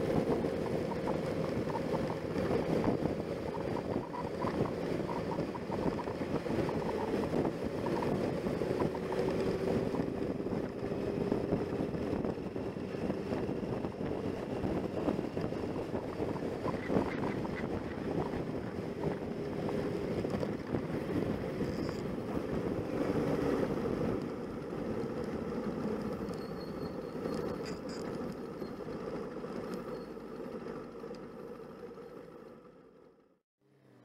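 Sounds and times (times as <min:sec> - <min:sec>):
wind noise over camera: 0:00.0 - 0:26.3
motorcycle engine: 0:00.0 - 0:34.0.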